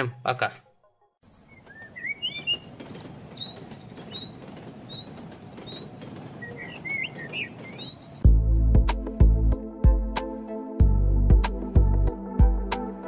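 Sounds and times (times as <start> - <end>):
outdoor ambience: 0.0 - 9.5
small birds chirping: 1.2 - 8.3
music with heavy bass beat: 8.3 - 13.0.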